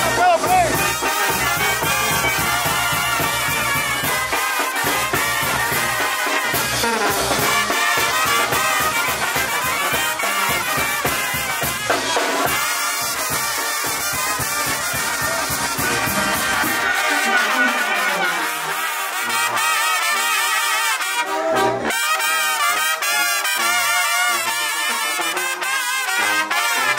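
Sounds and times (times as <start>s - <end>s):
trumpets playing tune: 0.0s - 26.9s
sousaphone bass line: 15.2s - 17.7s.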